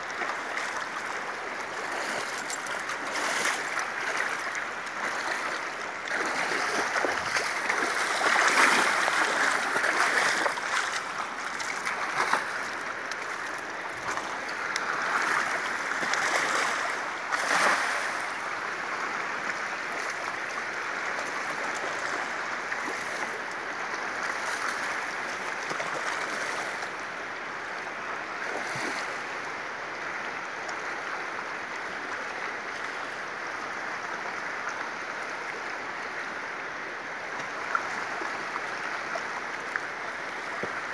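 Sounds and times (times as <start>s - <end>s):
person wading through water: 0.0s - 18.6s
river water rushing: 0.0s - 40.9s.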